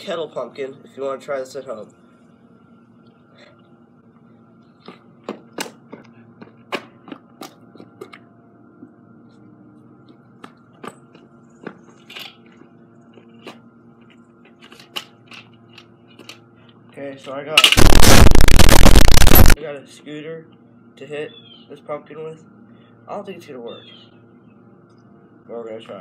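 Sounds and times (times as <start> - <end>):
faint steady hum: 0.0 - 26.0
footsteps on concrete: 4.8 - 8.2.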